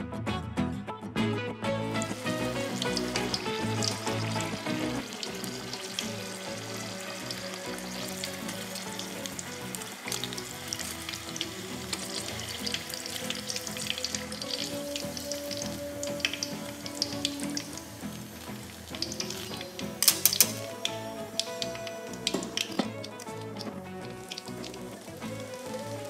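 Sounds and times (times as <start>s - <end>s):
food deep-frying in oil: 2.0s - 26.0s
louder clicks: 19.3s - 22.9s.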